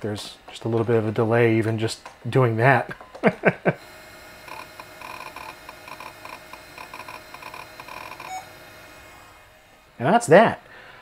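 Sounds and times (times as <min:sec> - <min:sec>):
hard drive ticking and chirping: 0:03.5 - 0:09.5.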